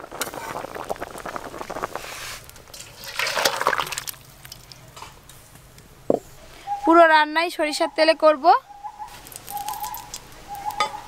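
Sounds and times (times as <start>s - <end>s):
broth sloshing and pouring: 0.0s - 4.9s.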